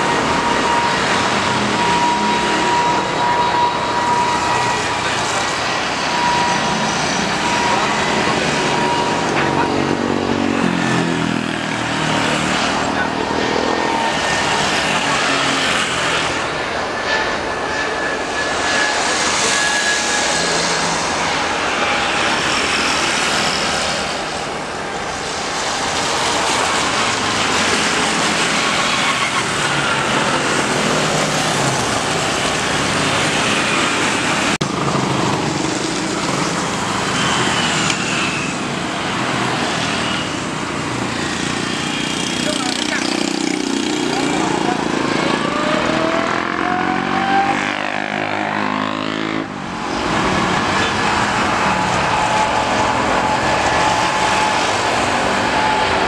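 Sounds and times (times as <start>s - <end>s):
jet engines at takeoff thrust: 0.0s - 56.0s
jet engines running on runway: 0.0s - 56.0s.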